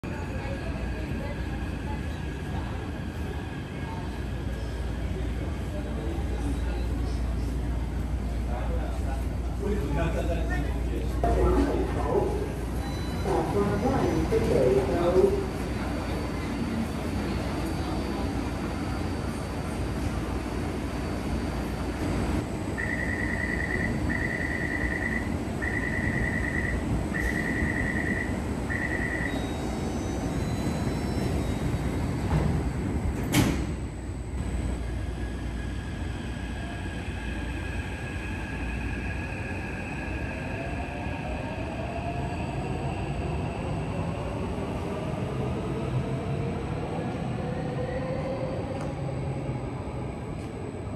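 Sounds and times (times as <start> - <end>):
train doors shutting: 11.3 - 34.9.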